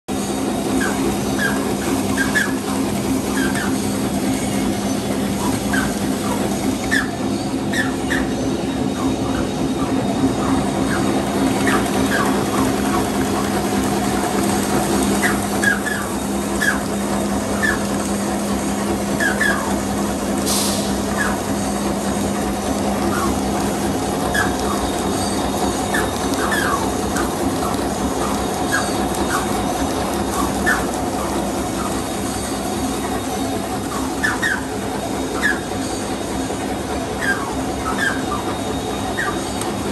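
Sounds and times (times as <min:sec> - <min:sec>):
machine humming: 0:00.1 - 0:39.9
brief hiss: 0:20.4 - 0:21.0.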